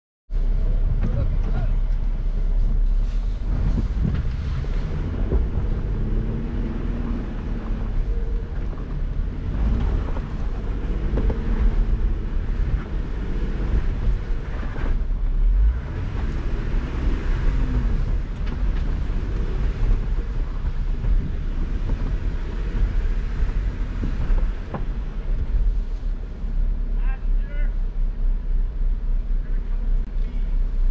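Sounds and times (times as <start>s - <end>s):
car engine rumbling under load: 0.3s - 30.9s.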